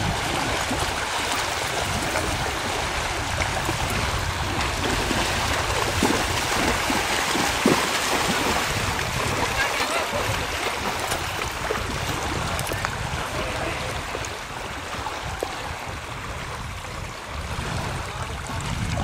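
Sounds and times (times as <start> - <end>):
lake water lapping: 0.0 - 19.0
small water splashes: 0.0 - 19.0
wind buffeting microphone: 0.0 - 19.0.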